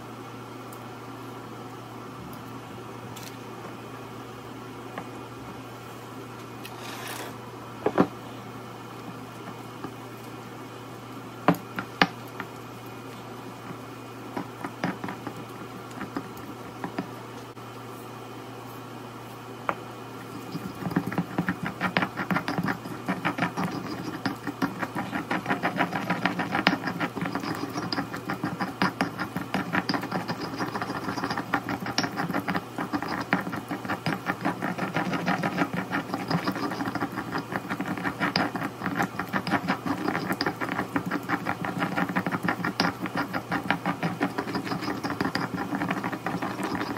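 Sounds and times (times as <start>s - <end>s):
pestle pounding and grinding: 13.6s - 17.1s, 20.2s - 46.9s
stone pestle knocking: 20.4s - 46.9s.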